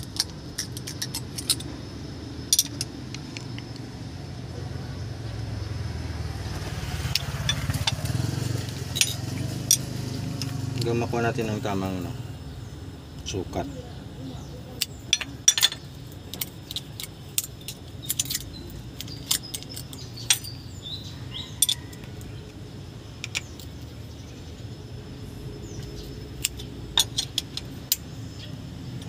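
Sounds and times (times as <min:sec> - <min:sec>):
metal tools clicking on engine: 0:00.0 - 0:01.8, 0:02.5 - 0:03.8, 0:07.1 - 0:11.0, 0:14.8 - 0:23.9, 0:25.7 - 0:29.0.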